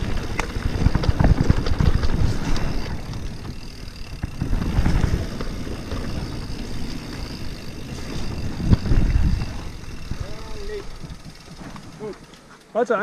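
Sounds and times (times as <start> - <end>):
wind buffeting microphone: 0.0 - 12.0
bike knocks and rattles: 0.0 - 12.5
bike tyre rumble: 0.0 - 12.7.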